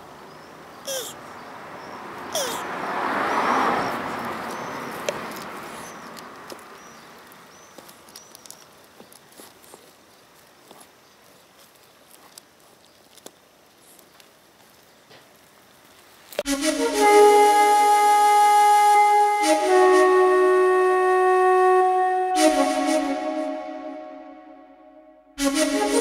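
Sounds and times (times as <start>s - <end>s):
flute tune: 16.4s - 26.0s.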